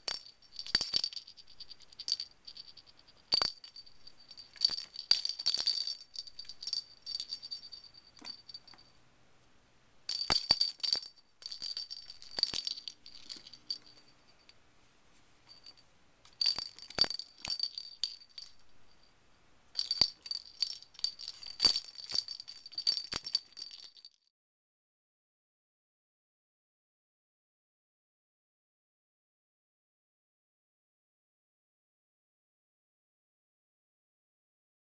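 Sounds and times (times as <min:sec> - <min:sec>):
bell toy jingling on wooden floor: 0:00.0 - 0:09.0, 0:10.1 - 0:14.6, 0:15.5 - 0:15.8, 0:16.4 - 0:19.1, 0:19.8 - 0:24.3.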